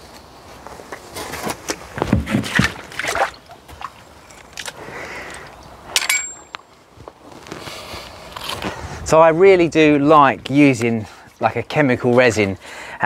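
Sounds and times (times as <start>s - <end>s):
knocks and scuffs of movement: 6.3s - 12.5s.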